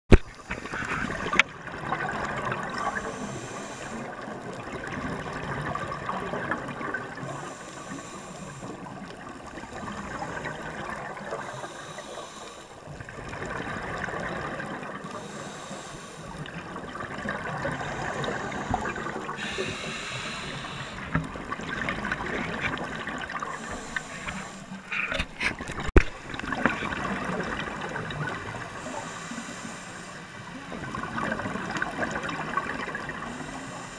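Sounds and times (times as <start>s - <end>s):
scuba regulator breathing underwater: 2.7s - 4.5s, 7.0s - 12.9s, 14.6s - 16.7s, 17.4s - 25.5s, 28.6s - 30.6s, 33.0s - 33.9s.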